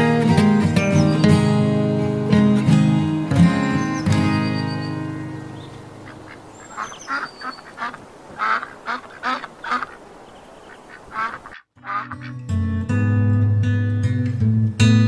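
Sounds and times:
acoustic guitar music: 0.0s - 6.7s, 11.8s - 15.0s
ducks quacking: 3.5s - 12.4s.

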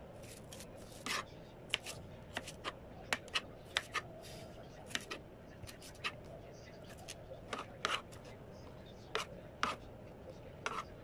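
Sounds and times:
knife chopping on plastic board: 0.2s - 4.0s, 4.9s - 6.2s, 7.0s - 8.2s, 9.1s - 9.8s, 10.6s - 10.9s.

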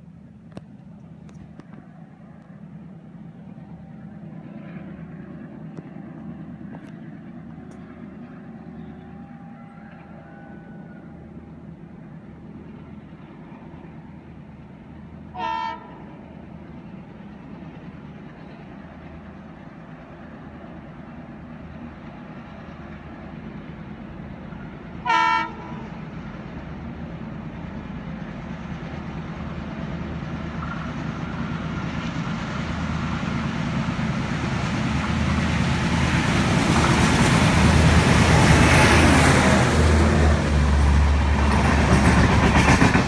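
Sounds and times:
train rumble: 0.0s - 43.0s
train horn blast: 15.3s - 16.1s, 25.0s - 26.0s.

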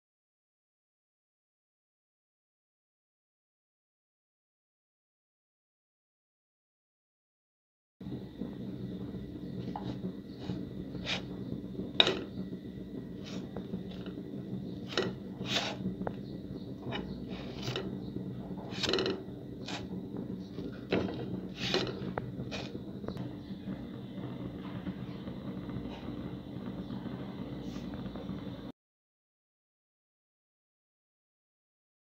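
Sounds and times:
steady low hum: 8.0s - 28.7s
metal spatula scraping frying pan: 9.7s - 11.3s, 12.0s - 12.4s, 14.8s - 16.0s, 16.8s - 18.0s, 18.7s - 20.0s, 20.8s - 22.8s.

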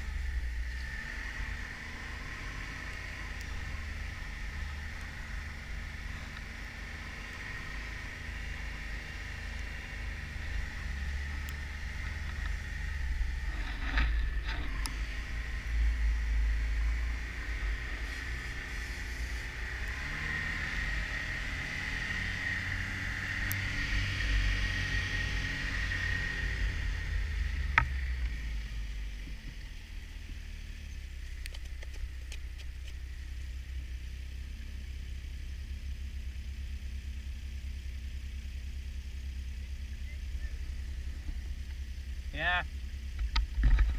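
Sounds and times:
snowmobile engine running: 0.0s - 33.2s.

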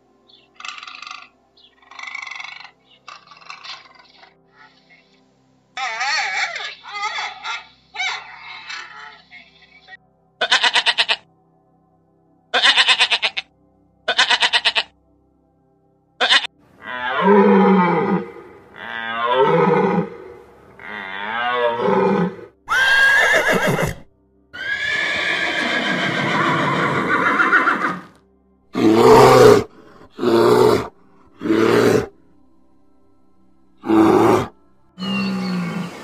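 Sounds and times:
goat bleating: 10.4s - 11.2s, 12.6s - 13.4s, 14.1s - 14.9s, 16.2s - 16.5s
horse whinnying: 16.2s - 28.2s, 28.8s - 32.1s, 33.8s - 36.0s.

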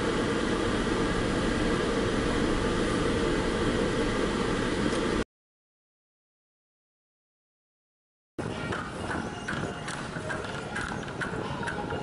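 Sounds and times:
car engine and road noise: 0.0s - 5.2s.

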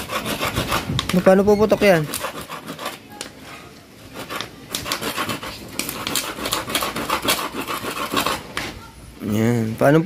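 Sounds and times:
rasping scraping strokes: 0.0s - 1.1s, 1.7s - 3.0s, 4.1s - 8.5s.

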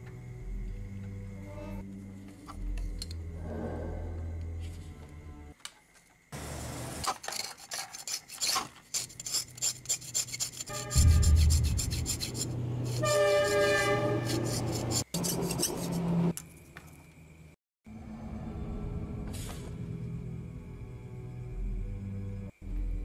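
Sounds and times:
metal blade scraping copper wire: 7.0s - 16.2s.

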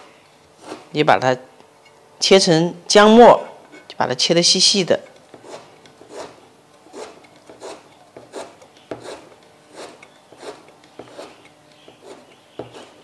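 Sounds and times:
knife chopping on plastic board: 5.4s - 13.0s.

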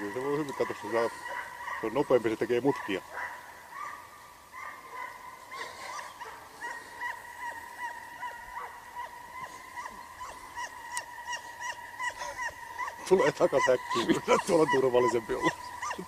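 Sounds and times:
dog yipping: 4.6s - 16.0s
dog whining: 5.5s - 8.4s, 9.0s - 16.0s.

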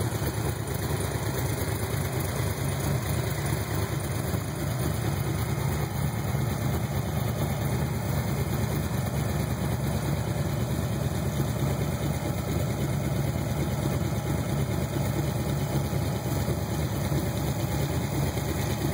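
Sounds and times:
engine idling: 0.0s - 18.9s.

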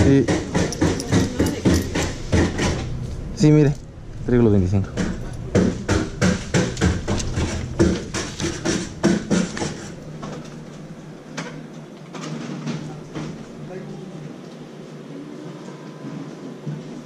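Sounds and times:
coins clicking and tapping: 0.5s - 2.2s.

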